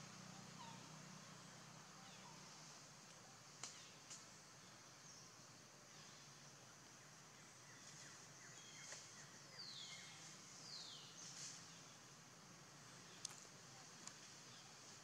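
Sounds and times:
steady high hiss: 0.0s - 15.0s
falling bird calls: 0.3s - 1.0s.

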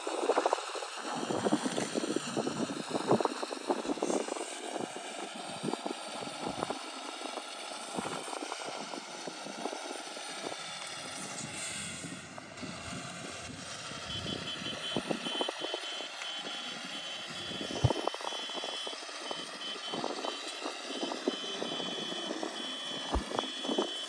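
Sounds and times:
toy electric motors straining: 14.1s - 24.0s.

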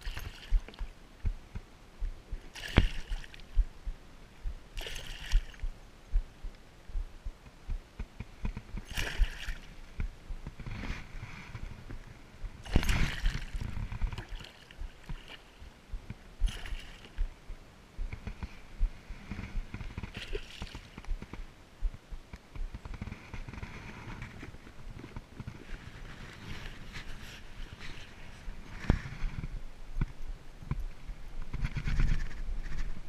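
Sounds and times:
fish splashing in water: 0.0s - 0.9s, 2.5s - 3.6s, 4.8s - 5.7s, 8.8s - 9.7s, 12.6s - 15.5s, 16.4s - 17.3s, 20.1s - 21.0s
low knocks and rumble: 0.5s - 8.9s, 20.9s - 23.0s.

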